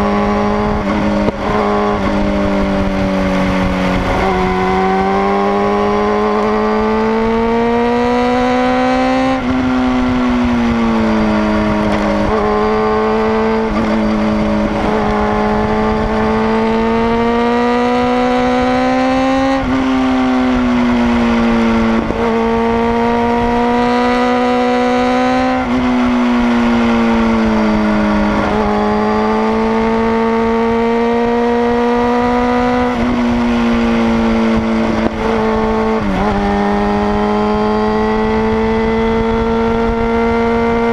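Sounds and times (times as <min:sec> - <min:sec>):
motorcycle engine revving: 0:00.0 - 0:40.9
wind rushing: 0:09.0 - 0:40.9.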